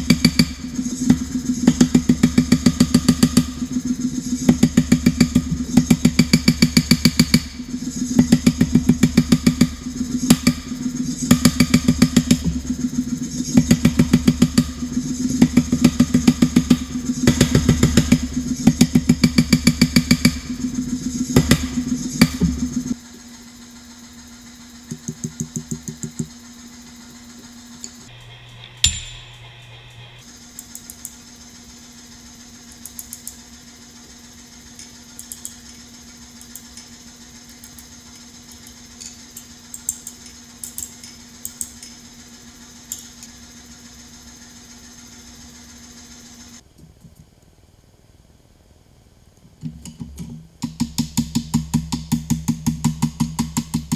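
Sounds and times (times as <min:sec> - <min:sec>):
power hammer pounding steel: 0:00.0 - 0:23.0, 0:50.6 - 0:53.9
steady low hum: 0:00.0 - 0:53.9
hand hammer blows on anvil: 0:28.6 - 0:29.8.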